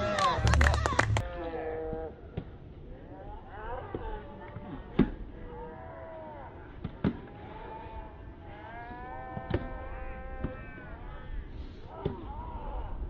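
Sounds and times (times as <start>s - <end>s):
people shouting: 0.0s - 1.3s.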